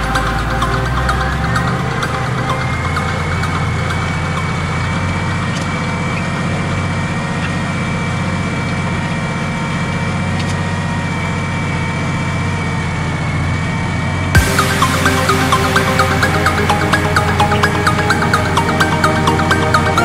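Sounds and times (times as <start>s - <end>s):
thin high whine: 14.4s - 20.0s.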